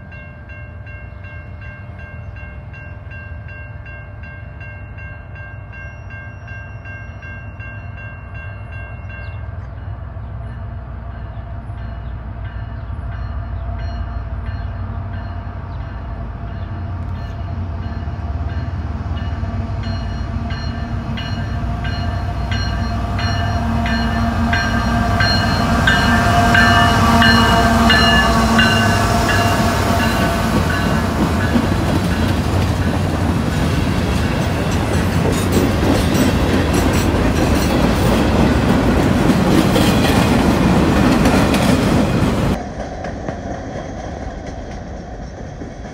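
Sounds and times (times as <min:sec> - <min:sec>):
crossing bell ringing: 0:00.0 - 0:42.6
diesel locomotives passing: 0:00.0 - 0:45.9.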